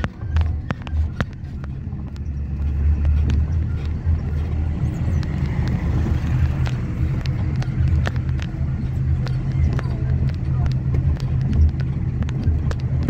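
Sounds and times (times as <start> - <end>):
sharp rattling clicks: 0.0 - 13.0
vehicle engine and road rumble: 0.0 - 13.0.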